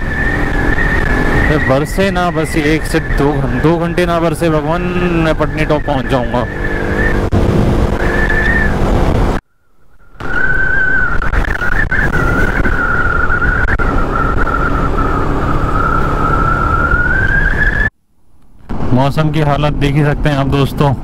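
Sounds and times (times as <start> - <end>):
wind rushing past microphone: 5.9 - 17.9
steady high whistle: 9.5 - 17.9.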